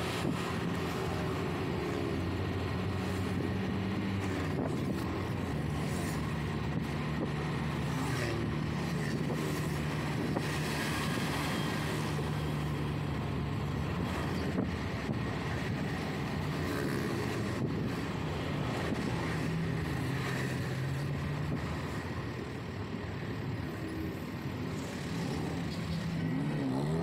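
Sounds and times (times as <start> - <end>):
car engine hum: 0.0 - 27.0
road noise: 0.0 - 27.0.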